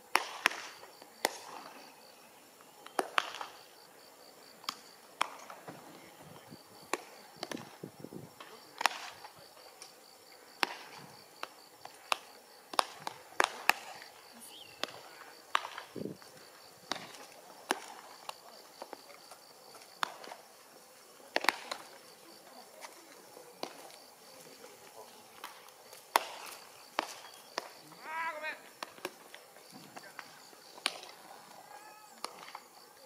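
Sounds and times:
baseballs smacking into gloves: 0:02.9 - 0:03.6, 0:04.6 - 0:05.8, 0:10.6 - 0:14.1, 0:14.7 - 0:16.1, 0:16.9 - 0:18.4, 0:21.3 - 0:21.9, 0:25.4 - 0:27.8, 0:28.8 - 0:31.2
faint high pulsing chirp: 0:14.3 - 0:14.9.

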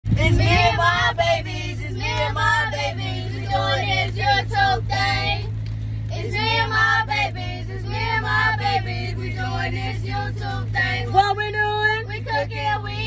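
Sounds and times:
low hum: 0:00.1 - 0:13.0.

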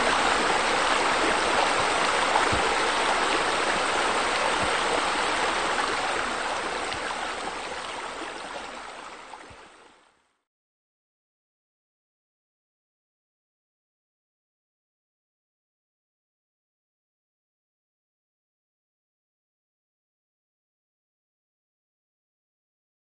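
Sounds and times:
water falling into pool: 0:00.0 - 0:09.8.

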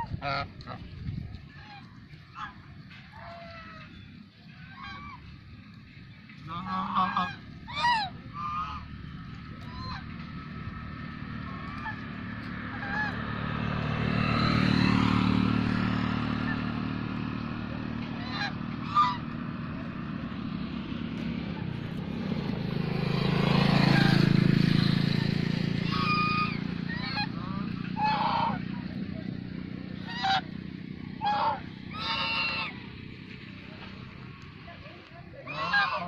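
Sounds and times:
geese honking: 0:00.0 - 0:00.9, 0:01.5 - 0:20.3, 0:25.7 - 0:29.3, 0:29.9 - 0:33.0, 0:35.3 - 0:36.0
vehicle passing: 0:00.0 - 0:36.0.

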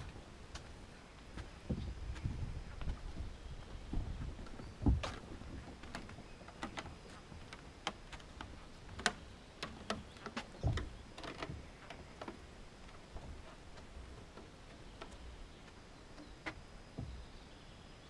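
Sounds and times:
footsteps on forest trail: 0:00.0 - 0:09.2.

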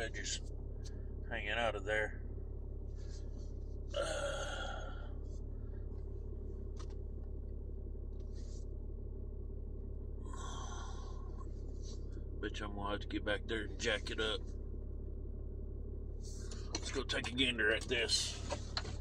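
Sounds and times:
pickup truck engine idling: 0:00.0 - 0:19.0
person sighing: 0:04.0 - 0:05.1, 0:10.3 - 0:11.3.

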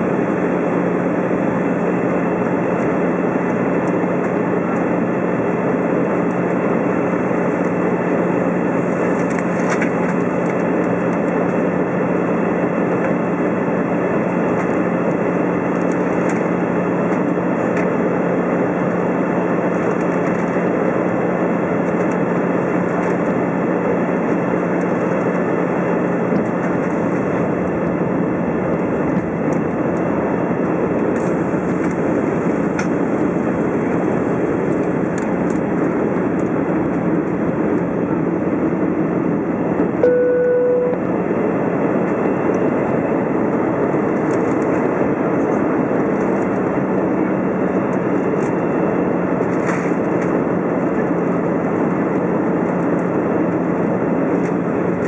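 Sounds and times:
cabin airflow and engine noise: 0:00.0 - 0:55.0
short chime: 0:40.0 - 0:41.0
low steady hum: 0:40.0 - 0:41.4.

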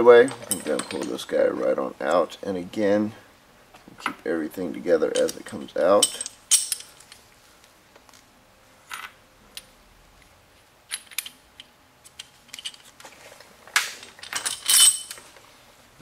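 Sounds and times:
metallic clinks of steel parts: 0:14.2 - 0:15.3.

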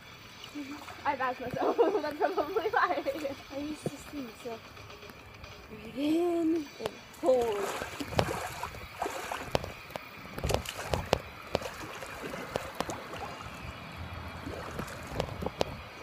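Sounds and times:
pool water sloshing and lapping: 0:00.2 - 0:03.9, 0:07.1 - 0:16.0
water slaps and splashes: 0:06.8 - 0:16.0.

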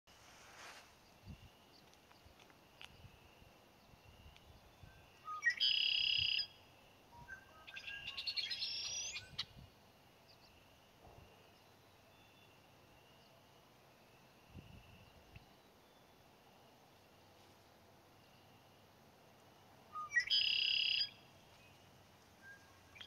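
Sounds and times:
blackbird singing: 0:03.8 - 0:09.6, 0:19.9 - 0:21.8, 0:22.4 - 0:23.0.

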